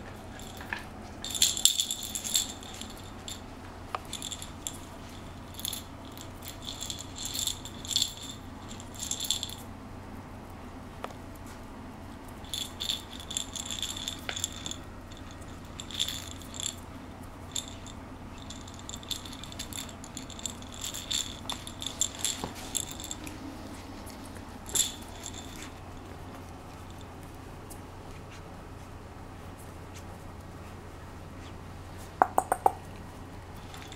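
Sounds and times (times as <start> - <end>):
plush toy rattle shaking: 0.0 - 9.7, 12.3 - 27.8, 33.6 - 33.9.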